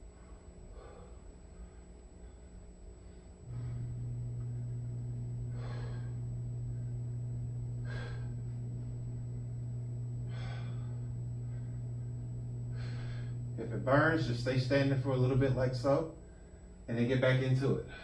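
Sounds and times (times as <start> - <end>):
steady low hum: 0.0 - 18.0
man exhaling hard: 5.5 - 6.3, 7.8 - 8.5.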